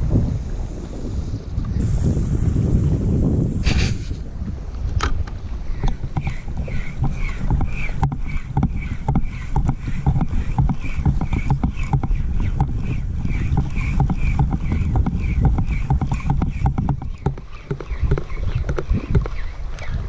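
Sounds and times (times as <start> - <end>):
wind rumble on microphone: 0.0 - 20.0
fishing reel cranking: 5.9 - 18.3.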